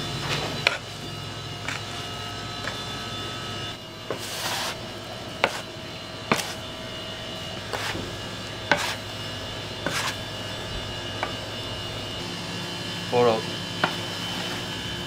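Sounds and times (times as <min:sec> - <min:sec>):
steady electrical hum: 0:00.0 - 0:15.0
sharp knocks on work surface: 0:13.8 - 0:14.0.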